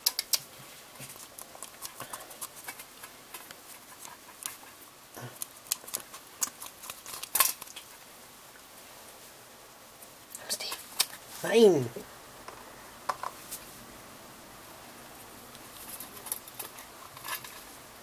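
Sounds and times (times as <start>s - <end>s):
hamster claws scratching on metal: 15.7s - 17.7s.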